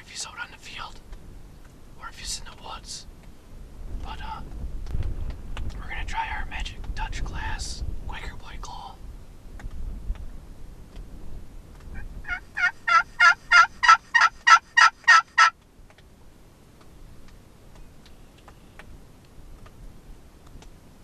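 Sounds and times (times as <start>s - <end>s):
turkey call yelps: 12.0s - 15.5s.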